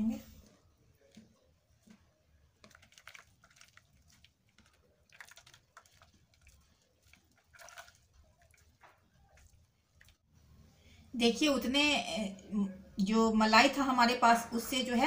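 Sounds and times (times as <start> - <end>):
wet squelching of butter by hand: 1.0 - 10.2.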